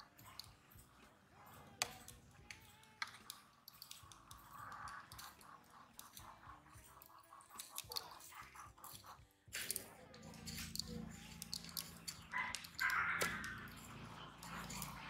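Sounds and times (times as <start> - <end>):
metal tongs clicking on bowl: 1.8 - 5.4, 9.6 - 15.0.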